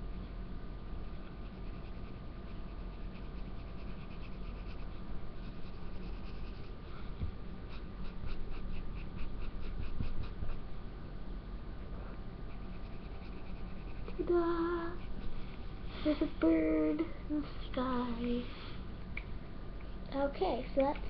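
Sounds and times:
faint steady hum: 0.0s - 21.0s
felt-tip marker scratching on paper: 1.2s - 6.8s, 12.5s - 14.3s.

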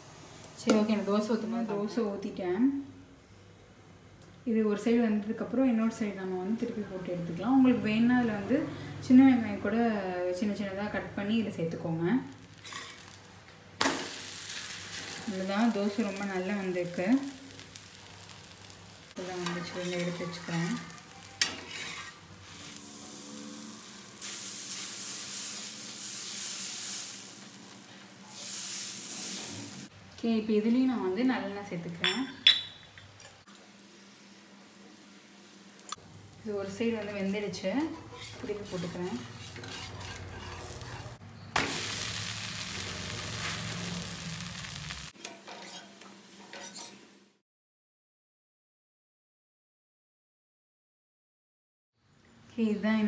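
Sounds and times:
batter sizzling on hot griddle: 12.2s - 29.9s, 33.8s - 47.2s.

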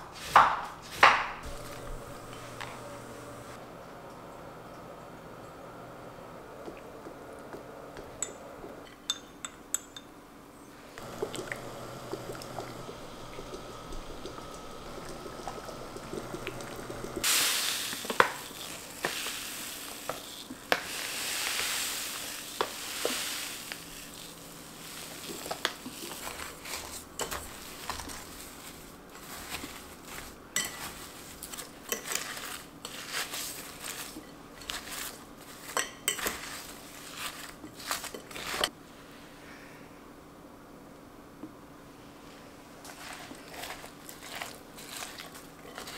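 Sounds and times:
steady hissing: 1.4s - 3.6s.

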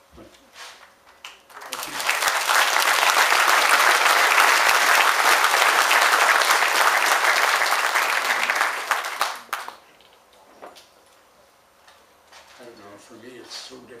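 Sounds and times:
audience applauding: 1.3s - 9.8s.

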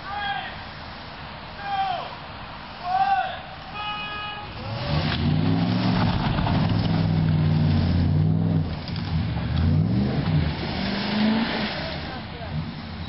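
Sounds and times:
truck engines revving hard: 4.5s - 13.0s.

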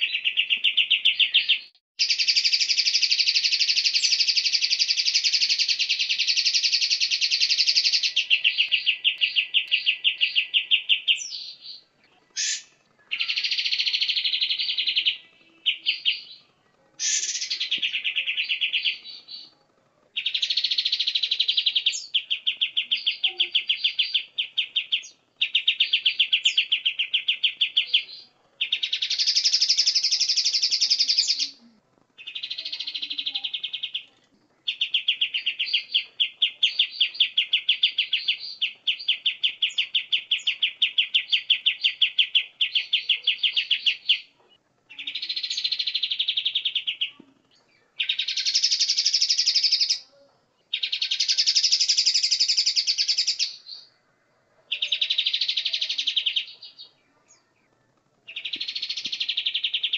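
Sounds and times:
songbirds singing: 0.0s - 59.9s.

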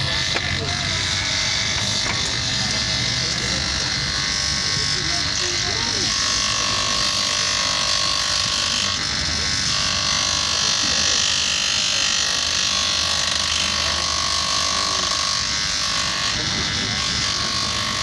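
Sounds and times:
bench grinder motor whine: 0.0s - 18.0s.

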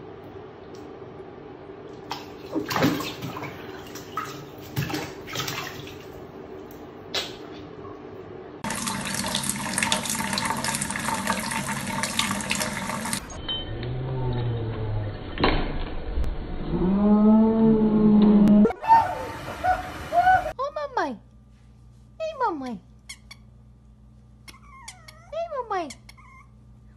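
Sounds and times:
bathtub water splashing: 2.0s - 6.3s, 8.6s - 13.3s
kitchen tap running: 8.6s - 13.3s.

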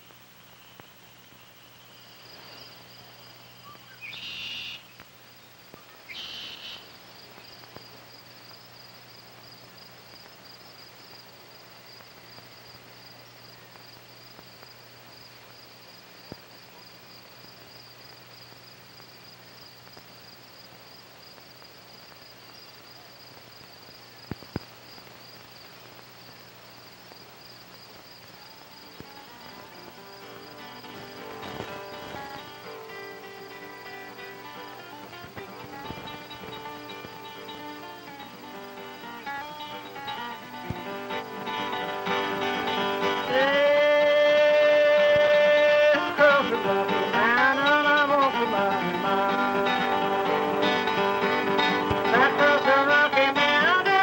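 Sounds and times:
faint low hum: 0.0s - 54.0s
insects chirring: 0.0s - 54.0s
faint clicks: 4.9s - 14.8s, 16.2s - 17.4s, 19.7s - 38.4s.

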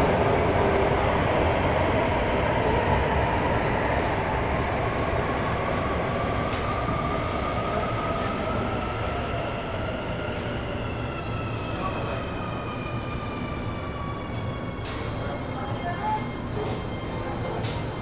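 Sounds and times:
metro train rumbling in tunnel: 0.0s - 18.0s.

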